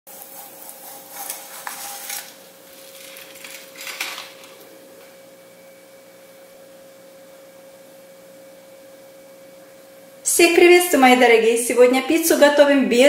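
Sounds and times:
spatula scraping a plate: 0.1s - 3.8s
pizza sliding onto a plate: 0.1s - 4.6s
faint steady hum: 0.1s - 13.0s.

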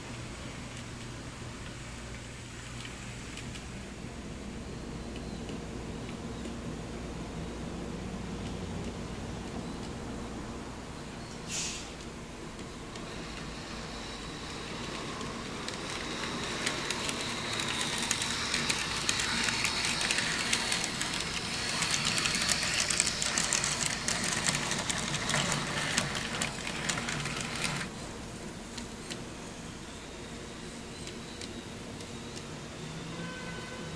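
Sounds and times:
electric motor whining: 14.6s - 27.9s
wheels clicking over rail joints: 14.8s - 27.9s.

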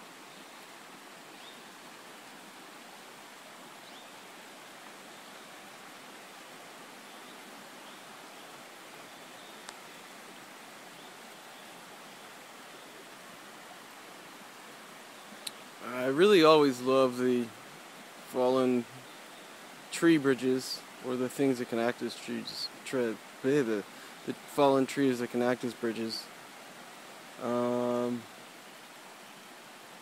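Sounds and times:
stream flowing over rocks: 0.0s - 30.0s
faint click: 15.4s - 15.6s.

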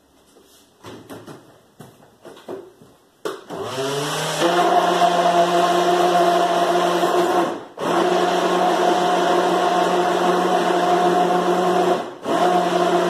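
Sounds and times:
blender motor running: 3.5s - 13.0s.

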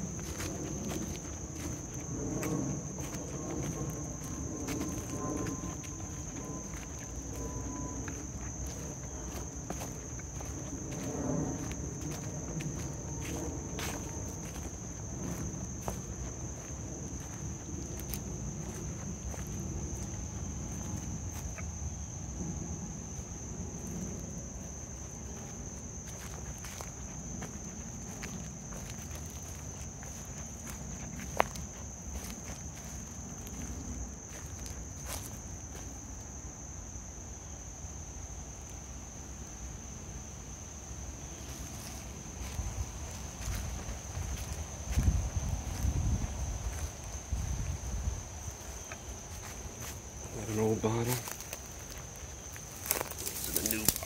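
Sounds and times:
footsteps on dry leaves: 0.0s - 21.6s, 24.6s - 36.0s, 41.5s - 54.0s
insects trilling: 0.0s - 54.0s
crackles: 52.7s - 54.0s
twigs clicking: 52.8s - 54.0s.

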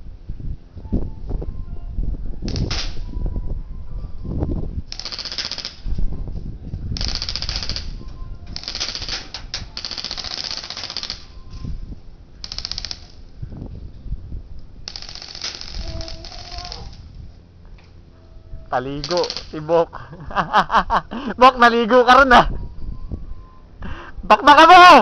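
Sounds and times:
airsoft rifles firing bursts: 4.9s - 5.8s, 7.0s - 11.3s, 12.4s - 13.2s, 14.9s - 17.0s, 19.0s - 19.6s.

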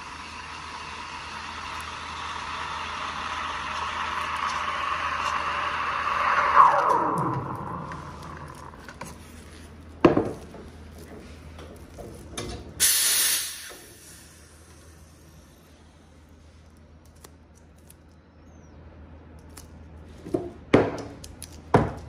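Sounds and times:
steam wand hissing: 0.0s - 8.8s, 12.8s - 14.6s.

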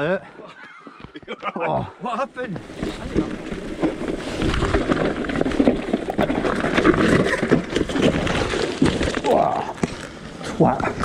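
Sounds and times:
bike crash: 2.6s - 10.0s
mountain bike rattling over rocks: 2.6s - 11.0s.

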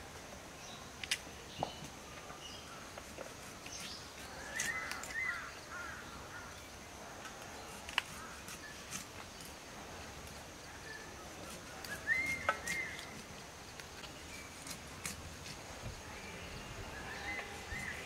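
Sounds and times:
faint steady high hiss: 0.0s - 18.0s
bird calling: 3.6s - 6.6s, 10.8s - 13.4s, 16.0s - 18.0s.

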